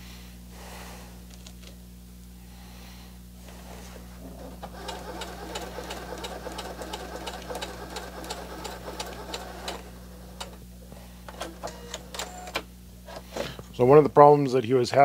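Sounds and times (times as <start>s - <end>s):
sewing machine stitching: 4.4s - 9.9s.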